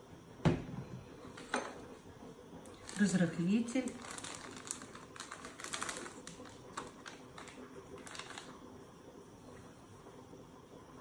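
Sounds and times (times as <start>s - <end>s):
paper crinkling and tearing: 3.9s - 8.5s.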